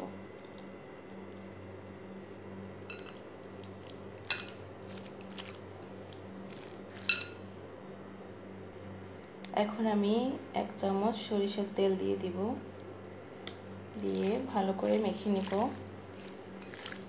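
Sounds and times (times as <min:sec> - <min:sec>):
steady low hum: 0:00.0 - 0:17.0
fingers squishing eggplant: 0:02.8 - 0:07.7, 0:13.0 - 0:17.0.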